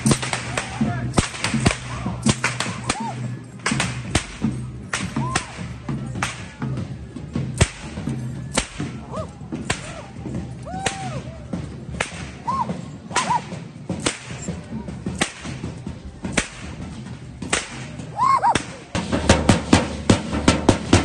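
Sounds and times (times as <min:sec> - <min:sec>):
whip cracks: 0:00.0 - 0:06.6, 0:07.6 - 0:09.0, 0:09.6 - 0:10.1, 0:10.8 - 0:11.2, 0:12.0 - 0:14.5, 0:15.2 - 0:15.6, 0:16.3 - 0:16.8, 0:17.5 - 0:18.9.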